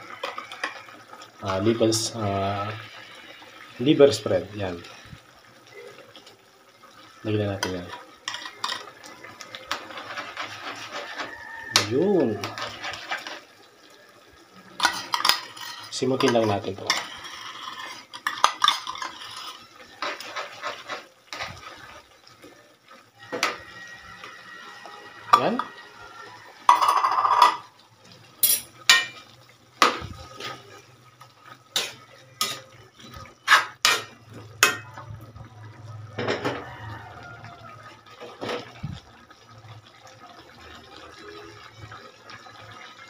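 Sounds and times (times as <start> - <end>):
spatula clinking and scraping a wok: 7.6 - 13.7, 14.6 - 22.0, 25.2 - 27.7, 28.4 - 35.2
metal spoon scraping a tin can: 9.6 - 13.5, 14.8 - 21.8, 33.4 - 34.8.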